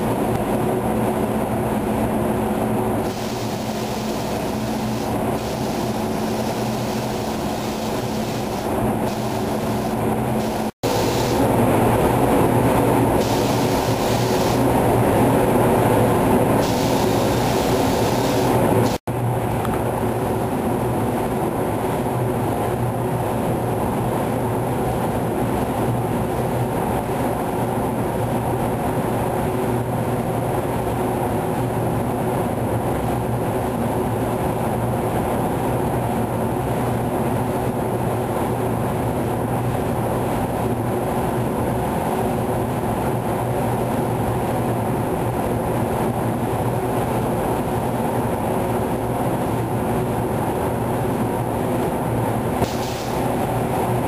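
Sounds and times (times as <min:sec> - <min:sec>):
rushing air drone: 0:00.0 - 0:22.1, 0:47.8 - 0:54.0
constant low hum: 0:00.0 - 0:54.0.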